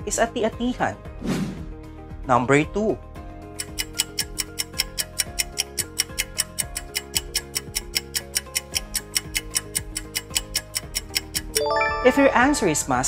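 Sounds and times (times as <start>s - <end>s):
fast clock-like ticking: 3.5s - 11.6s
soft backing tune: 7.6s - 13.0s.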